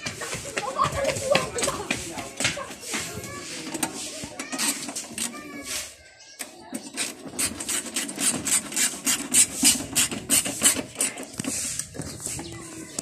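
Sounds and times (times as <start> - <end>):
socket wrench scraping on bolt: 3.7 - 5.4, 6.4 - 12.4.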